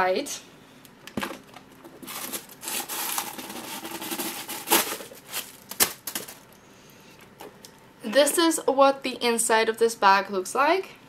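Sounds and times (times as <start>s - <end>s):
paper rustling: 2.0s - 6.5s.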